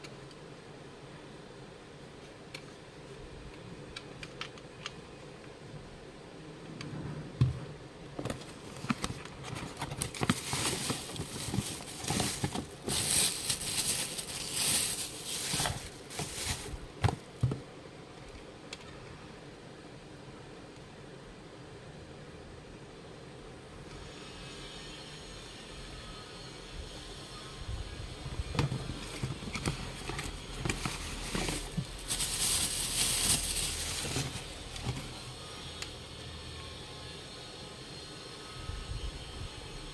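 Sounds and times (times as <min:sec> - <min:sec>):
cardboard box rustling: 0:08.2 - 0:17.6, 0:28.6 - 0:35.3
plastic bag crinkling: 0:08.3 - 0:17.4, 0:29.4 - 0:35.3.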